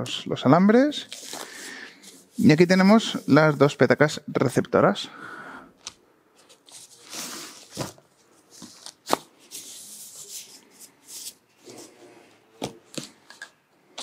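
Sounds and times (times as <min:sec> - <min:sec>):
plastic and cardboard rustling: 0:06.4 - 0:14.0.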